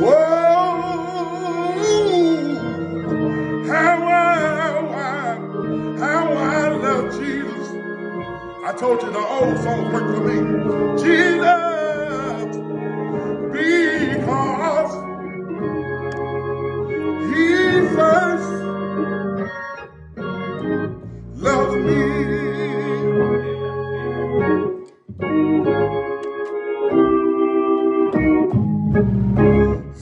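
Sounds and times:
man singing a hymn: 0:00.0 - 0:15.7, 0:16.9 - 0:18.8, 0:21.4 - 0:23.6
organ accompaniment: 0:00.0 - 0:30.0.

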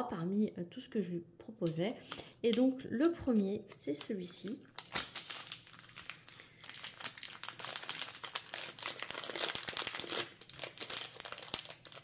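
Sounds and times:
plastic packaging crinkling: 0:03.9 - 0:12.0.

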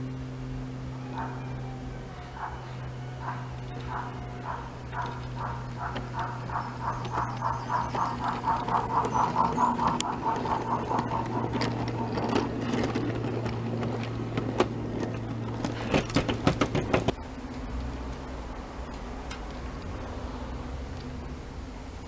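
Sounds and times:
low steady hum: 0:00.0 - 0:22.0
wagons clicking over track: 0:00.9 - 0:21.3
model train steam chuffs: 0:03.2 - 0:13.8.

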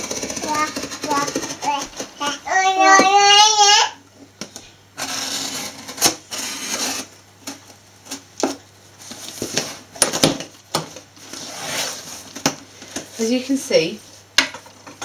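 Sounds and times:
knife scraping cardboard: 0:05.0 - 0:07.1.

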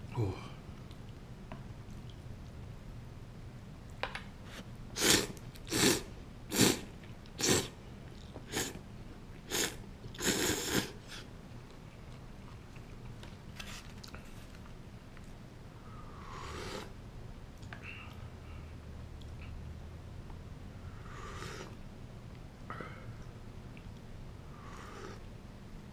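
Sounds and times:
person slurping noodles: 0:05.0 - 0:07.8, 0:08.5 - 0:08.8, 0:09.5 - 0:11.3, 0:16.2 - 0:16.9.

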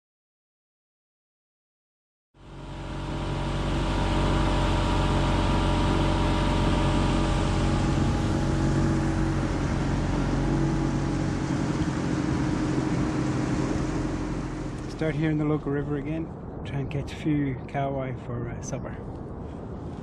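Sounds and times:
outboard motor running: 0:02.4 - 0:15.4.

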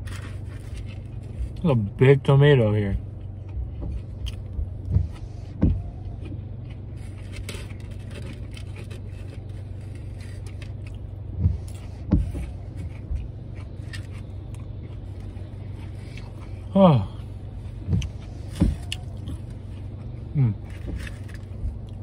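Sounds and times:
person chewing food: 0:00.0 - 0:01.6, 0:03.0 - 0:22.0
low hum in car cabin: 0:00.0 - 0:22.0
low thumps: 0:02.9 - 0:06.3, 0:11.2 - 0:13.5.

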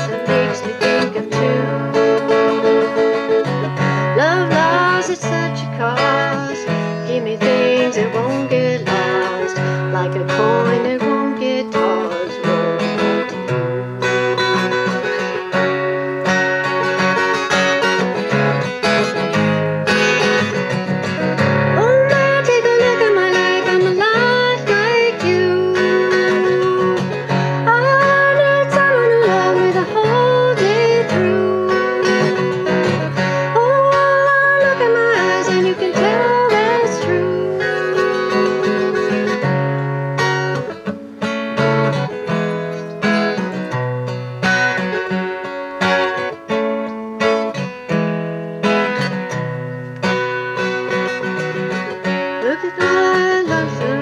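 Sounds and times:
woman singing: 0:00.0 - 0:13.4, 0:21.6 - 0:39.7, 0:52.2 - 0:54.0
acoustic guitar strumming: 0:00.0 - 0:54.0.

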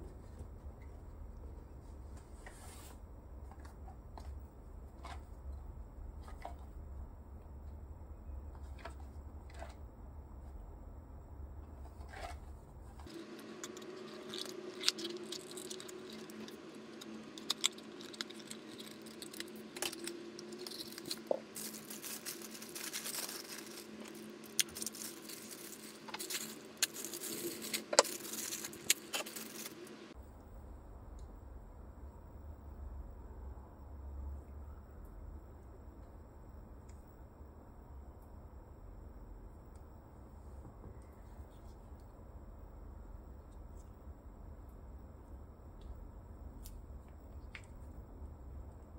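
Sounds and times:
plastic bag crinkling: 0:13.0 - 0:30.0.

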